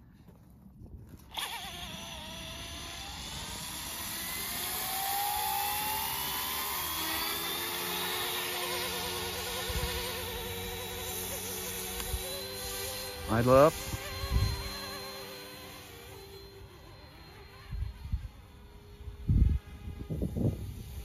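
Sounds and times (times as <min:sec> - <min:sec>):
helicopter electric motors whining: 0:01.1 - 0:21.0.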